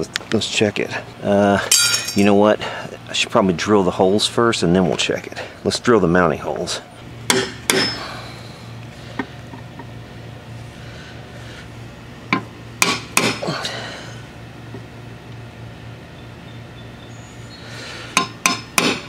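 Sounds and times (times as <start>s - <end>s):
hammer striking metal punch: 7.3s - 8.0s, 12.3s - 13.4s, 18.2s - 19.0s.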